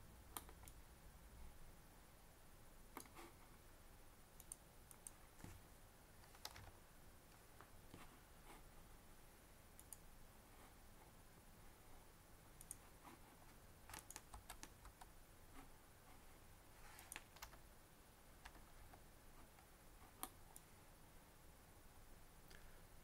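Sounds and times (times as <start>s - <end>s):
computer mouse clicks: 0.3s - 0.8s, 2.9s - 3.2s, 4.4s - 5.6s, 9.8s - 10.0s, 12.6s - 12.8s, 13.9s - 15.1s, 16.9s - 17.6s
keyboard keystrokes: 13.9s - 15.1s.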